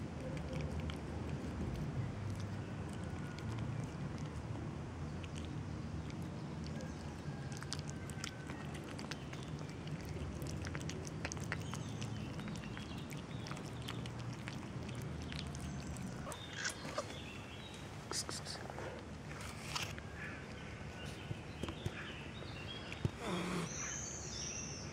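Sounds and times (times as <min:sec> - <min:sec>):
kittens chewing wet food: 0:00.0 - 0:23.8.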